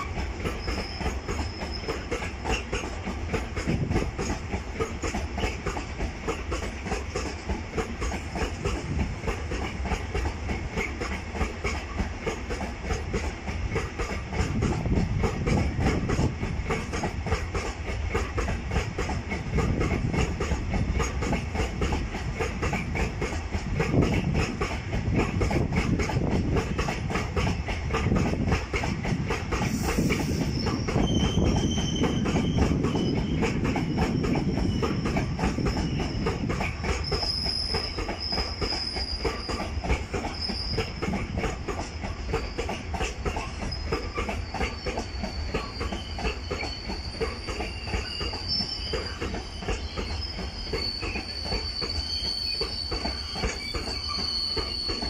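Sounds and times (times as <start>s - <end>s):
high wheel squeal: 0.0s - 2.8s, 29.6s - 55.0s
train wheels clattering over joints: 0.0s - 55.0s.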